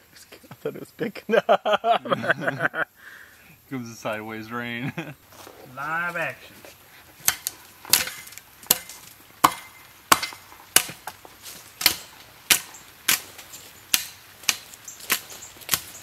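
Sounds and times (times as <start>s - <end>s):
hand tool chopping into soil: 7.2s - 16.0s.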